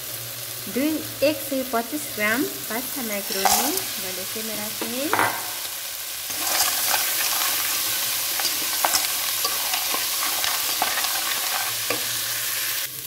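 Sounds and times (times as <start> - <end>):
frying hiss: 0.0 - 13.0
pasta and spatula scraping pan: 6.3 - 12.8.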